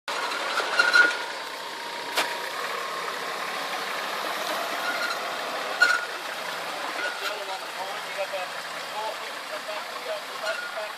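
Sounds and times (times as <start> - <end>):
vehicle engine at low revs: 0.1 - 10.9
high squeaks: 0.4 - 1.3, 4.7 - 6.2, 6.9 - 7.4, 10.4 - 10.9.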